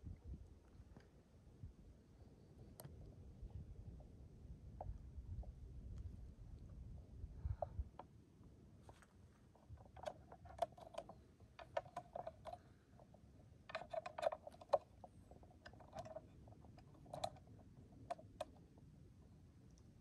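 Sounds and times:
light clicks and scratchy ticks: 8.9s - 18.8s.

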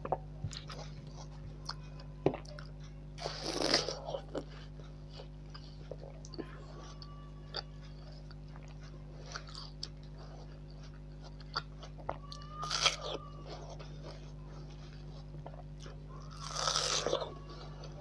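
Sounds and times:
person chewing watermelon: 0.0s - 18.0s
crunchy bite: 12.6s - 13.2s, 16.3s - 17.3s.

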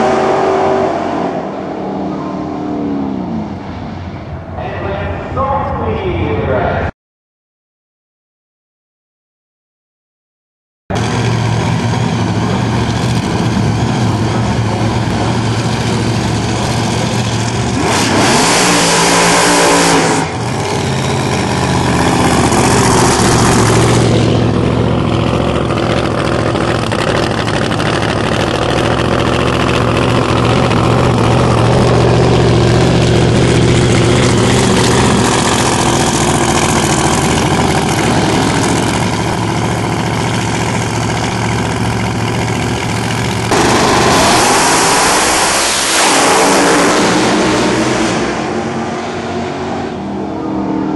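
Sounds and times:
engine hard revving: 0.0s - 3.7s, 10.9s - 50.9s
drag racing engines idling: 10.9s - 17.9s, 20.2s - 50.9s.

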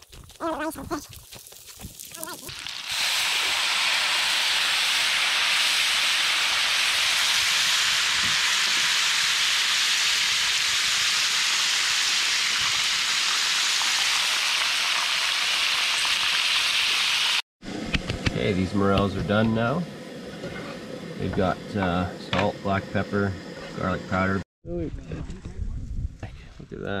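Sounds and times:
liquid sizzling in a hot pan: 2.5s - 17.4s.

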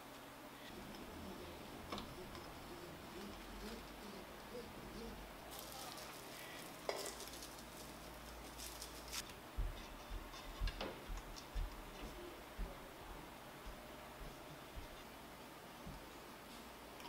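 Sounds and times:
glossy sheet crinkling: 5.0s - 9.3s.

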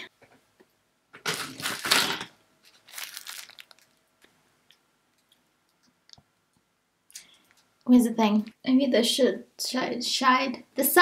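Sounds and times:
rustling and crinkling: 1.2s - 6.2s.

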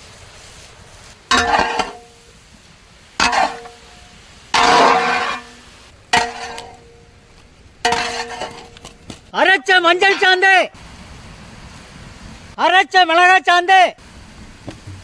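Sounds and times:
wooden spoon scraping pot: 4.6s - 5.5s, 7.9s - 8.8s.

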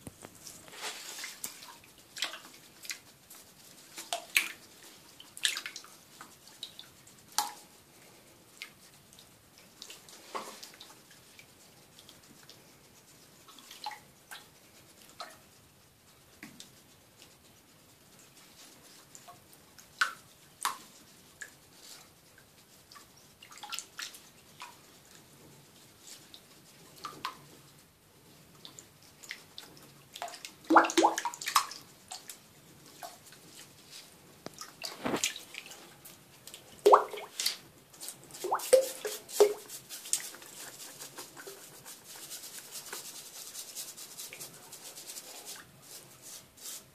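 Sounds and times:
toothbrush scrubbing: 0.9s - 27.9s, 28.5s - 34.1s, 35.0s - 46.9s
water splashing in a sink: 5.2s - 5.9s, 28.6s - 32.4s, 34.5s - 35.8s, 36.8s - 37.6s, 38.3s - 41.6s.

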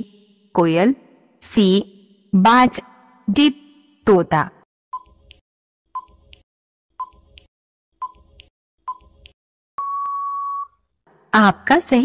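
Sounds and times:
long steady beep: 9.8s - 10.8s.

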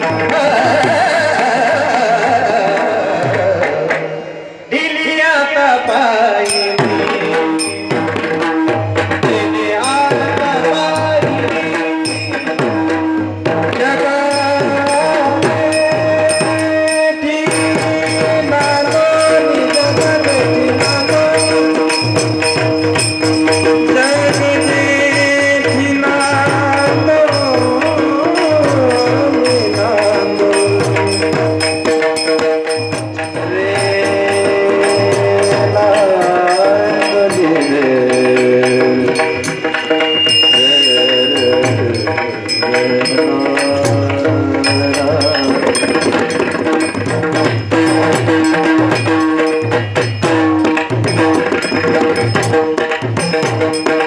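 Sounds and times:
small hand cymbals clashing: 6.4s - 8.8s, 12.0s - 13.2s, 14.2s - 54.0s
hand drumming: 6.5s - 54.0s
gliding devotional melody: 33.6s - 46.8s.

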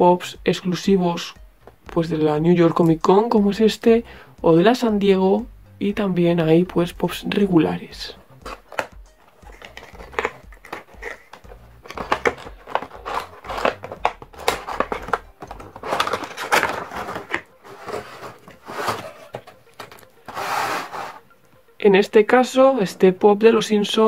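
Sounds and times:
cardboard box and plastic rustling: 8.5s - 21.2s.

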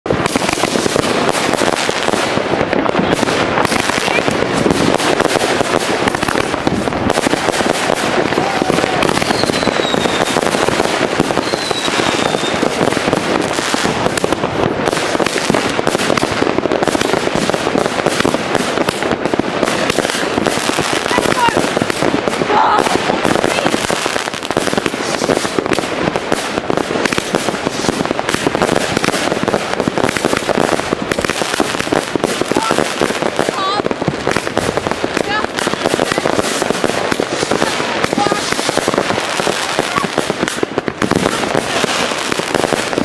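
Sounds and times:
fireworks bangs and crackling: 0.0s - 43.0s
firework whistles: 8.6s - 12.9s.

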